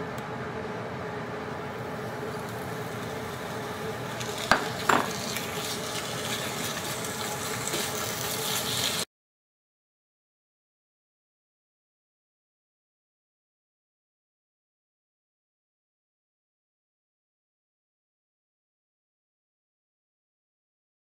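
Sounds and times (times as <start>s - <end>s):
steady hum: 0.0s - 5.8s
meat sizzling in hot oil: 1.8s - 9.1s.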